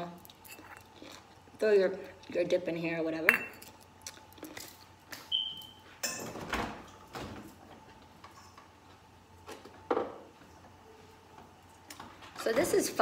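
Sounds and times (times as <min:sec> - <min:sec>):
refrigerator door squeak: 0:05.3 - 0:05.8.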